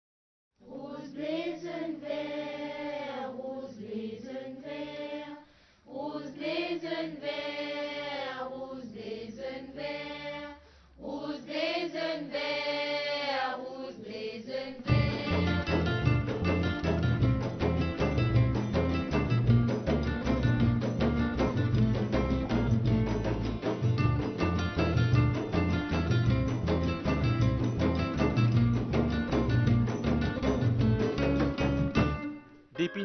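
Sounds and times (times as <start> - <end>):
voices singing slow chant: 0.6 - 15.9.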